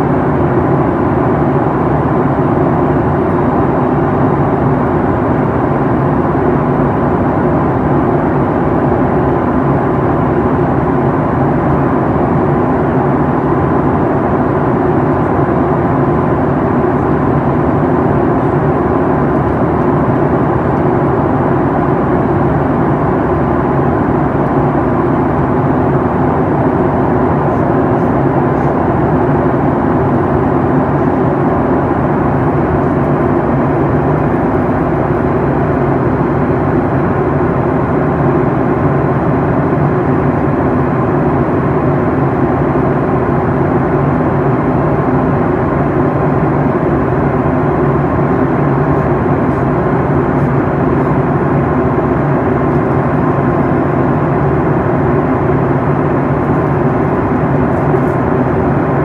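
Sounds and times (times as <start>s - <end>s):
jet engines roaring: 0.0s - 59.0s.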